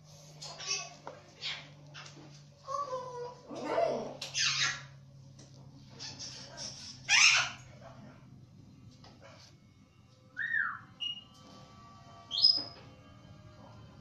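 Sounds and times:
whistled notes: 10.4s - 11.4s.

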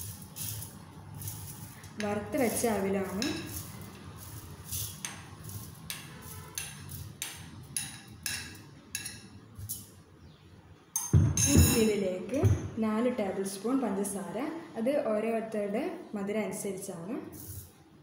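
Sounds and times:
spoon scraping glass bowl: 0.0s - 9.2s.

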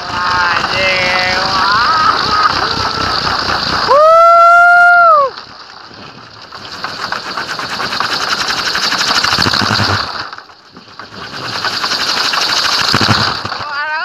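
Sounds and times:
wooden propeller whirring: 0.0s - 14.0s.

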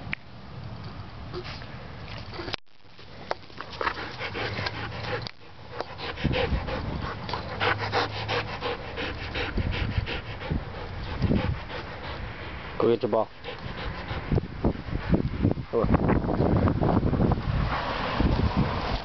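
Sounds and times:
dog panting: 3.7s - 15.3s.

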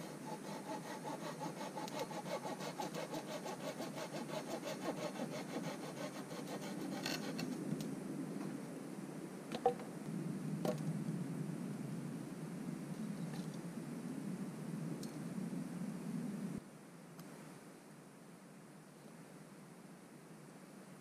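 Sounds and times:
hand saw cutting wood: 0.0s - 7.6s.

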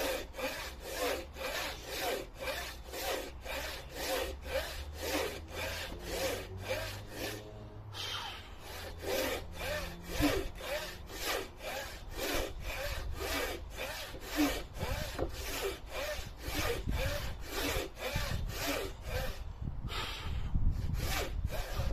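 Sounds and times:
saw rasping through wood: 0.0s - 21.9s.

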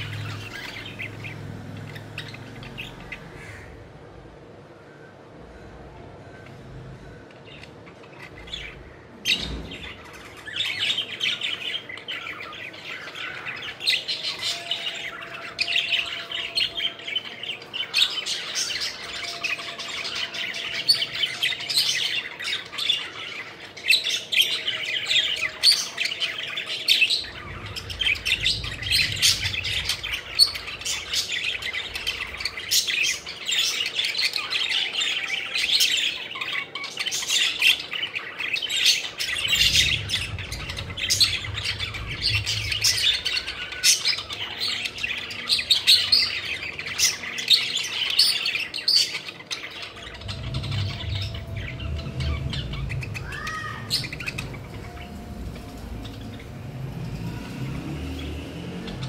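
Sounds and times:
low rumble: 27.2s - 32.7s, 39.1s - 45.5s, 49.9s - 59.0s.

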